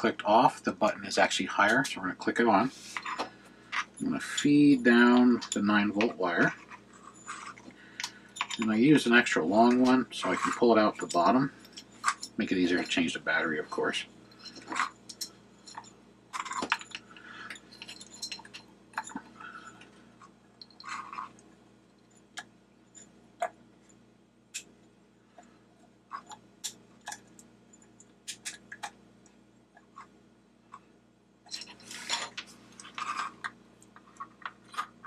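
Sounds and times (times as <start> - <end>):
small parts clicking and tapping: 3.0 - 8.7, 14.3 - 23.6, 25.4 - 30.1.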